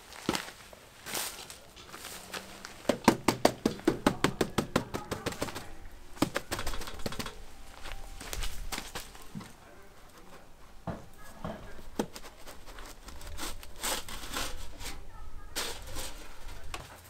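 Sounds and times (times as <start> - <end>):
metal board scraping on concrete: 11.1 - 16.8.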